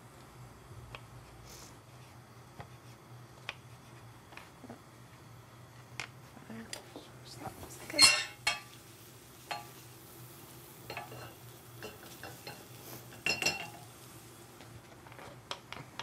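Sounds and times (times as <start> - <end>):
spoon knocking and scraping pan: 8.0 - 8.8, 9.5 - 9.8, 10.8 - 13.9.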